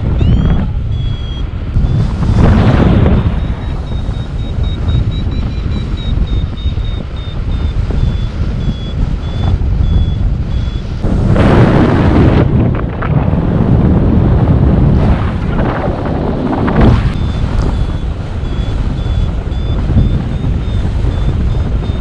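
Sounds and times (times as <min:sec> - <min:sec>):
variometer high beeps: 0:00.0 - 0:02.1, 0:03.0 - 0:11.0, 0:17.2 - 0:22.0
wind buffeting microphone: 0:00.0 - 0:22.0.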